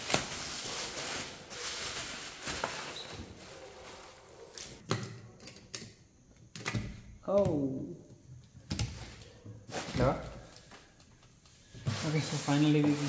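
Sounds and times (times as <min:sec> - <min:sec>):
plastic packaging rustling: 0:00.0 - 0:04.8.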